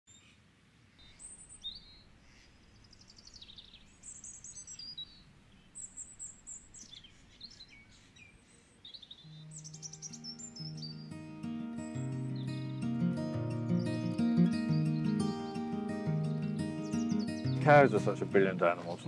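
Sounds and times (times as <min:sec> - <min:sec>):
birdsong chirps and trills: 0:00.1 - 0:19.0
soft sustained music notes: 0:09.3 - 0:19.0.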